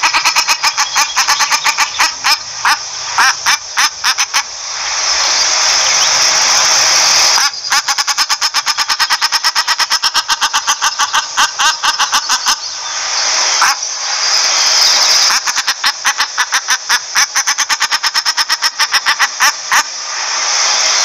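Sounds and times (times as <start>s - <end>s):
shelduck calling: 0.0s - 4.6s, 6.5s - 12.8s, 13.6s - 13.8s, 15.2s - 19.9s
steady hiss: 0.0s - 21.0s.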